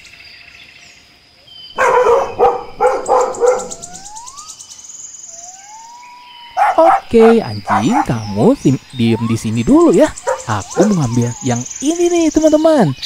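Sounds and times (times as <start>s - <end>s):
puppy barking: 1.8s - 4.0s, 6.6s - 8.1s, 10.2s - 11.6s
thin whistle-like tones: 3.4s - 4.6s.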